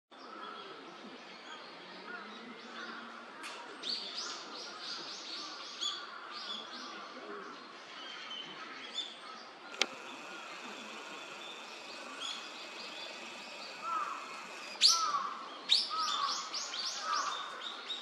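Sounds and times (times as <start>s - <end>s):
steady outdoor hiss: 0.2s - 18.0s
small songbird chirping: 8.4s - 18.0s
sharp click: 9.7s - 15.2s.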